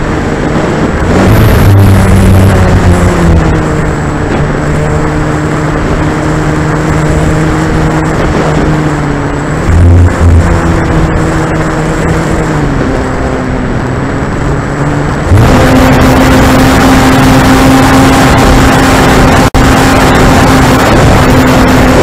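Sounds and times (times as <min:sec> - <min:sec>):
electric motor whine: 0:00.0 - 0:22.0
wind rush: 0:00.0 - 0:22.0.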